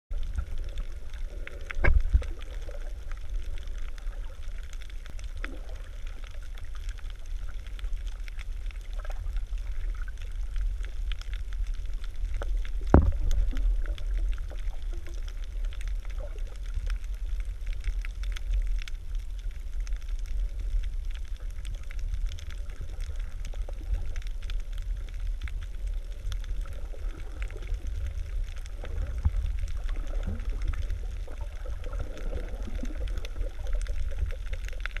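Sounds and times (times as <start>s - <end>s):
underwater rumble of moving water: 0.1s - 35.0s.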